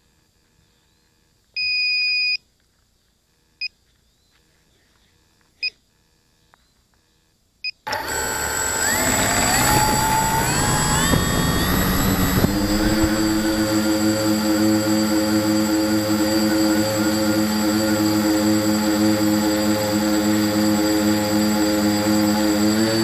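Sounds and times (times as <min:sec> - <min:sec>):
drone motors whirring: 0:07.9 - 0:23.0.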